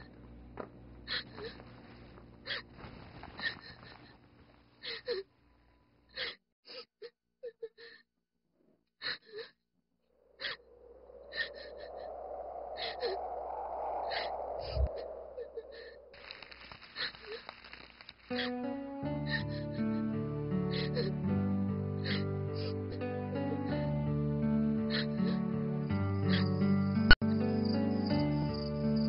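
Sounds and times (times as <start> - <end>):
rushing noise: 10.2 - 17.2.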